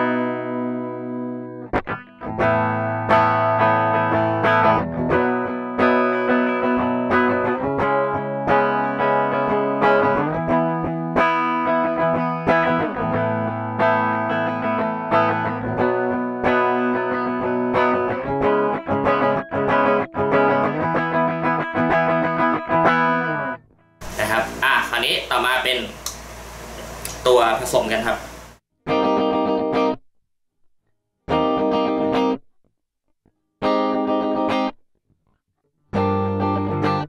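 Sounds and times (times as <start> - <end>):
clean electric guitar: 0.0 - 27.3, 28.9 - 30.0, 31.3 - 32.4, 33.6 - 34.8, 35.9 - 37.0.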